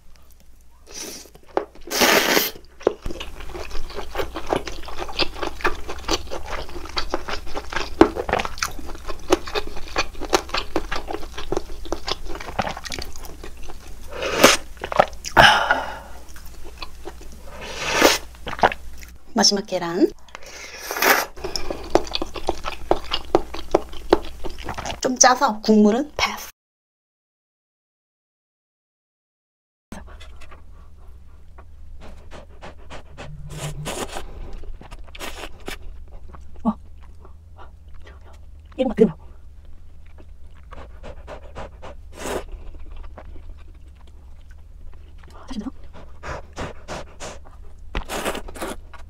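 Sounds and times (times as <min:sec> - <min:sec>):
noodle slurps: 0:01.9 - 0:02.6
chewing with mouth clicks: 0:02.6 - 0:15.4, 0:16.2 - 0:19.2, 0:21.4 - 0:25.1, 0:30.0 - 0:49.0
low hum: 0:30.0 - 0:46.6.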